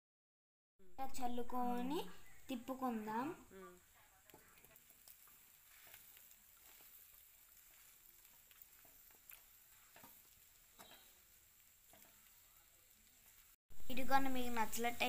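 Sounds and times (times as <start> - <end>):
faint sizzling in a pan: 0.8 - 15.0
soft clicks of mixing: 3.9 - 12.4.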